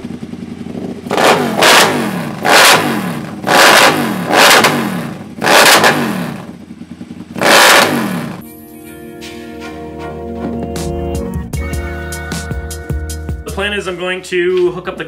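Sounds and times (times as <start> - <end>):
motorcycle engine revving: 0.0 - 8.4.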